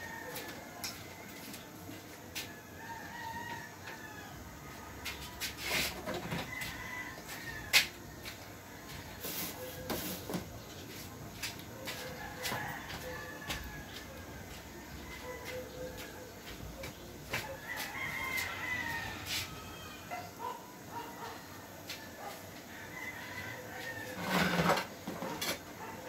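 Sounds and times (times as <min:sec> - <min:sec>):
rooster crowing: 0:00.0 - 0:01.5, 0:02.4 - 0:04.8, 0:06.1 - 0:08.0, 0:11.8 - 0:26.0.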